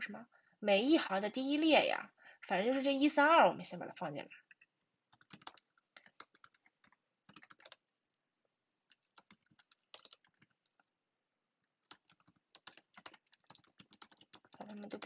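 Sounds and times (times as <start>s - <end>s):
keyboard typing: 4.6s - 7.9s, 8.9s - 10.9s, 11.8s - 15.0s.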